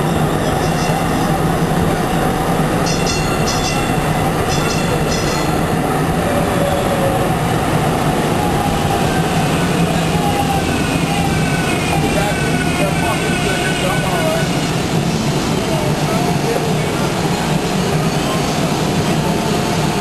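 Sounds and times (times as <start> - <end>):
rising train whine: 0.0 - 20.0
wheels rumbling on rail: 0.0 - 20.0.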